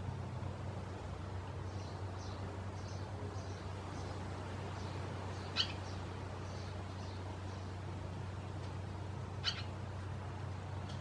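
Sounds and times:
steady low hum: 0.0s - 11.0s
swallows chirping: 1.6s - 7.8s, 9.4s - 9.8s.

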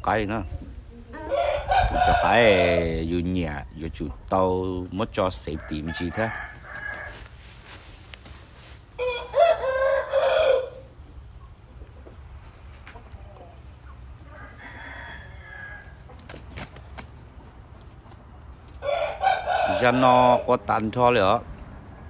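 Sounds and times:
rooster crowing: 1.2s - 2.6s, 5.5s - 7.3s, 9.0s - 10.9s, 14.2s - 16.0s, 18.8s - 20.5s.

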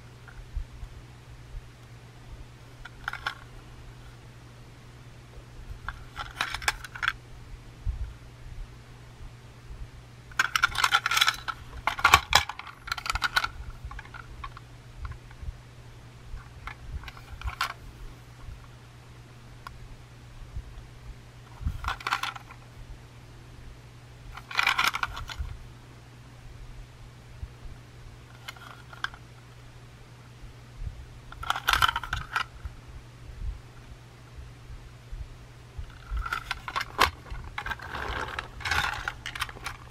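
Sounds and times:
plastic toy clicking and rattling: 2.8s - 3.5s, 5.9s - 7.2s, 10.3s - 14.6s, 16.6s - 17.8s, 21.8s - 22.6s, 24.4s - 25.4s, 31.3s - 32.5s, 35.9s - 39.9s.

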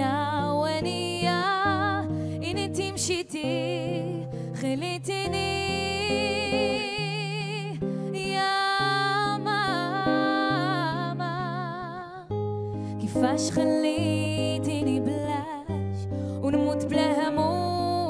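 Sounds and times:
woman singing with vibrato: 0.0s - 12.3s, 13.0s - 18.0s
acoustic guitar: 0.0s - 18.0s.

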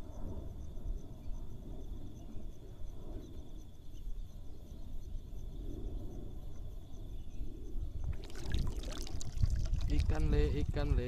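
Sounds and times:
high insect trill: 0.0s - 11.0s
fish splashing in water: 8.1s - 10.2s.

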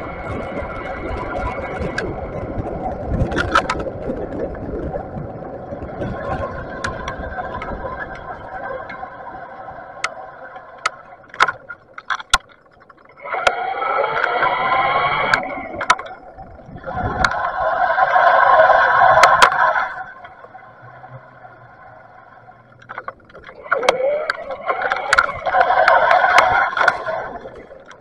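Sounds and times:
road and wind rumble: 0.0s - 28.0s
sharp clicks: 10.0s - 16.4s, 22.7s - 28.0s.

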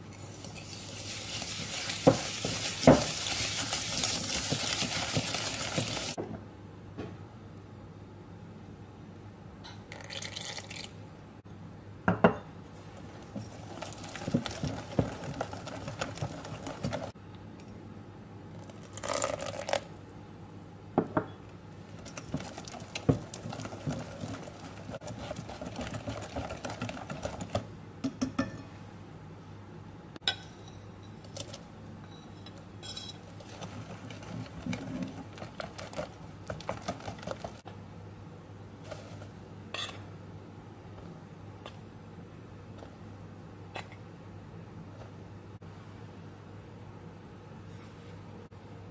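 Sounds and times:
whisk swishing wet batter: 0.1s - 6.2s, 13.0s - 17.1s, 21.9s - 27.7s, 33.3s - 37.6s.

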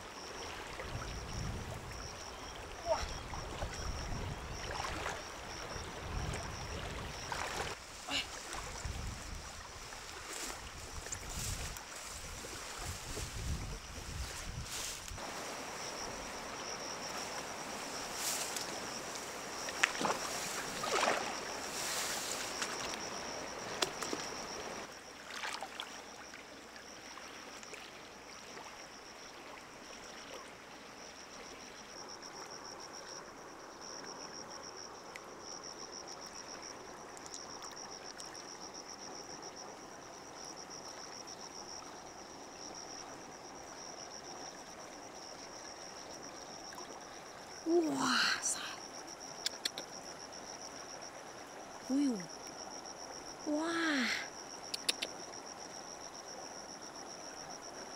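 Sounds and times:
water noise: 0.0s - 30.8s
sharp splashes: 19.8s - 22.8s.

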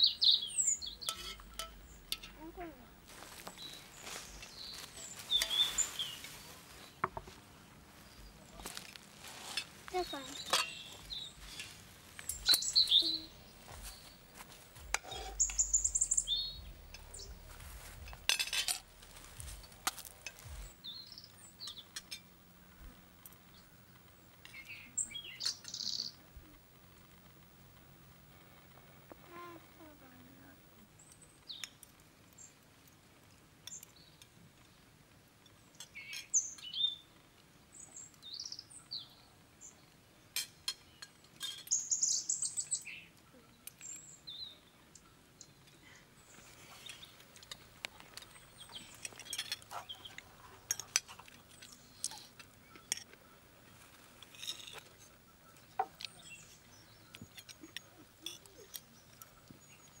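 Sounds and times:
small songbirds chirping: 0.0s - 60.0s
cutlery clicking on plates: 1.0s - 2.4s, 10.4s - 10.8s.

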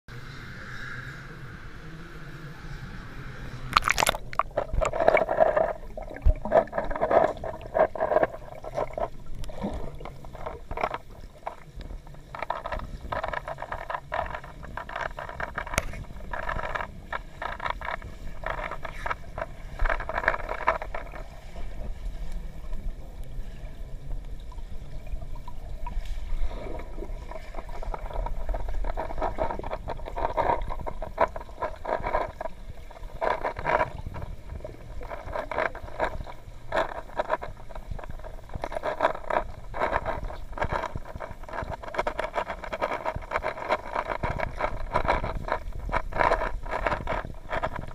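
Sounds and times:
underwater gurgling and bubbling: 0.1s - 47.9s
water splash: 3.7s - 11.2s.

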